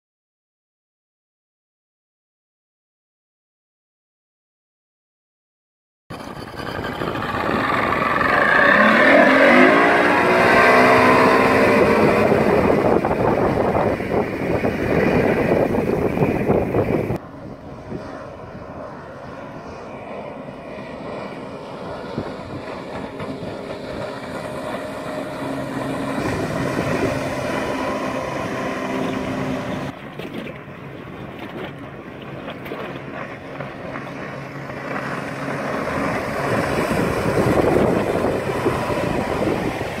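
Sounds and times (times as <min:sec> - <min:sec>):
outboard motor boat passing: 0:06.1 - 0:40.0.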